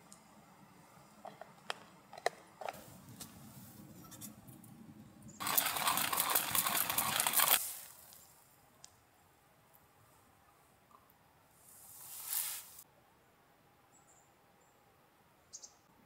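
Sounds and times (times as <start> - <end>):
coffee grinder crunching beans: 5.4 - 7.8.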